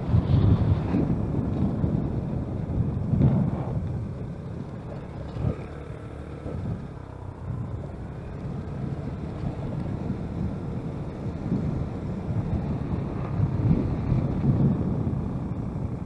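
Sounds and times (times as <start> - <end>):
road and engine rumble: 0.0 - 16.0
wind noise on microphone: 0.0 - 16.0.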